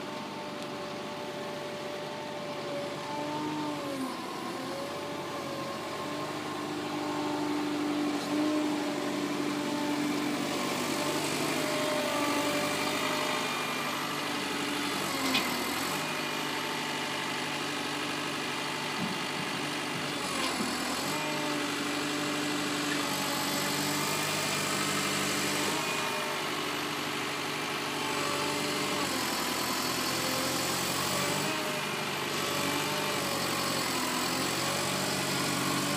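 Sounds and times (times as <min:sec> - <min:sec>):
diesel engine running: 0:00.0 - 0:35.9.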